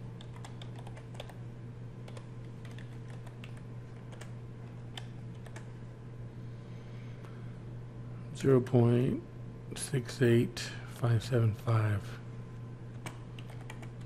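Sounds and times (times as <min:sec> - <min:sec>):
steady low hum: 0:00.0 - 0:14.0
keyboard typing clicks: 0:00.2 - 0:01.4, 0:02.0 - 0:05.7, 0:12.9 - 0:14.0.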